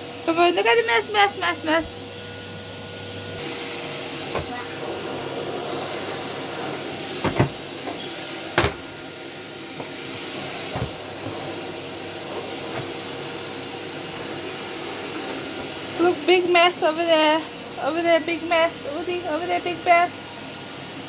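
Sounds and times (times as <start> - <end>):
vacuum cleaner running: 0.0 - 21.0.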